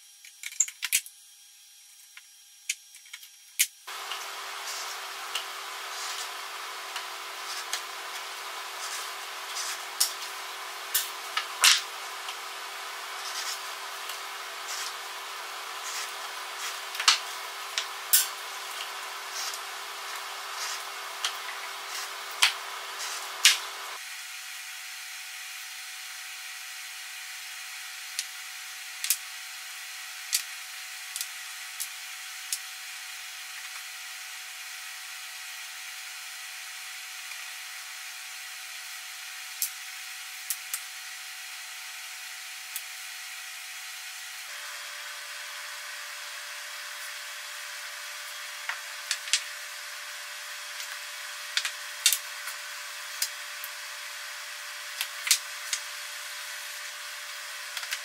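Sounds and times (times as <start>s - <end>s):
steady background hum: 1.8s - 24.0s.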